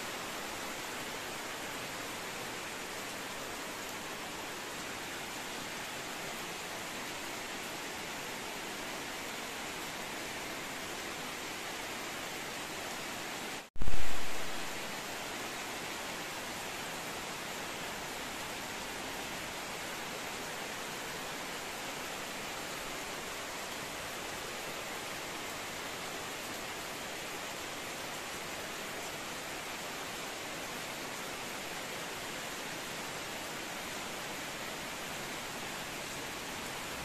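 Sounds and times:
heavy rain hissing: 13.5s - 16.2s.

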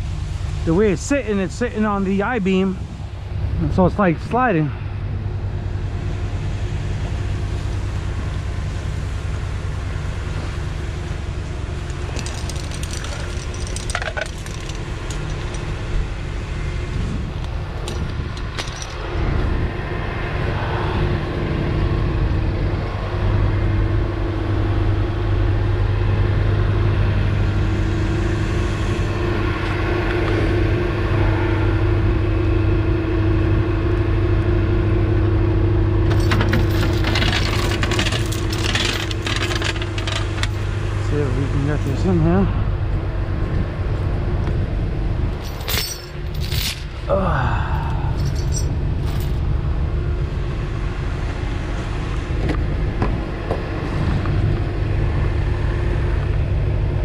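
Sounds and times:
truck engine idling: 0.0s - 20.5s, 21.2s - 57.0s
metal chains clinking: 11.9s - 15.8s, 17.8s - 19.0s, 36.1s - 40.6s, 45.4s - 46.9s, 47.8s - 49.4s.

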